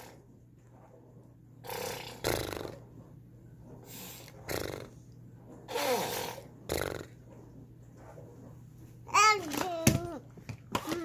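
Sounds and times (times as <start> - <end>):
toddler voice: 9.1 - 11.0.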